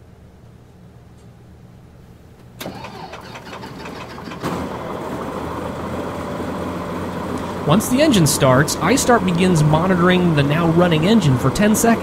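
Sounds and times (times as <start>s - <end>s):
electric starter cranking engine: 2.6s - 7.7s
aircraft piston engine running: 2.6s - 12.0s.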